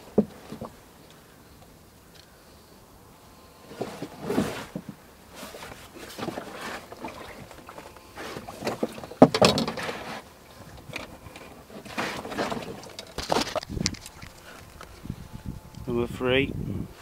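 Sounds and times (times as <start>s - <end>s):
knocks and thuds in a boat: 0.0s - 0.8s, 3.7s - 14.3s.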